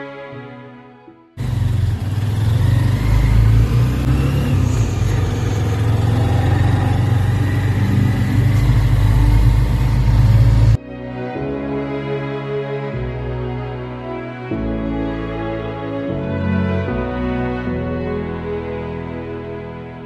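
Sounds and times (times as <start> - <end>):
motorcycle engine droning: 1.4 - 10.8
road noise: 1.4 - 10.8.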